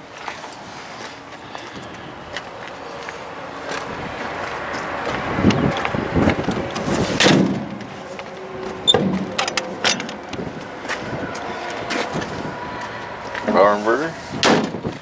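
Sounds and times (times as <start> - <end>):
latch clicks and knocks: 8.9 - 10.4.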